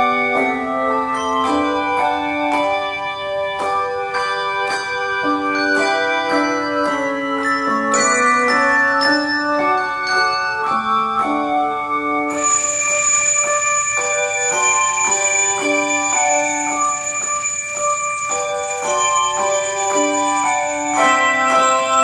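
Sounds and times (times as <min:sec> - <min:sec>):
handbells playing a hymn: 0:00.0 - 0:22.0.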